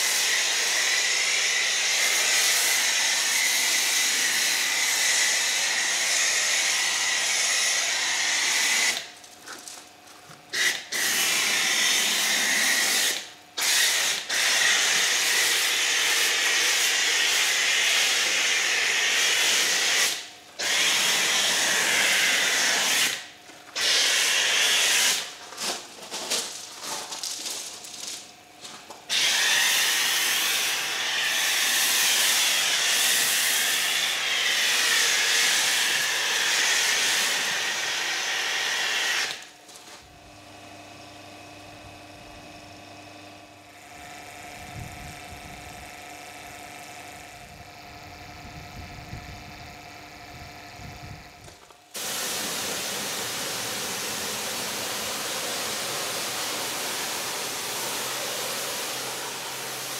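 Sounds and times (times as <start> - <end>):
pressure washer spray hissing: 52.0 - 59.9.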